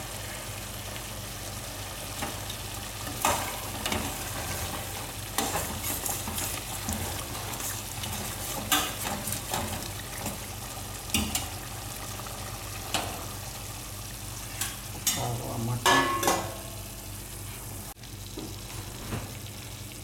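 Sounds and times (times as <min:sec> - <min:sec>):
paste sizzling in frying pan: 0:00.0 - 0:15.1.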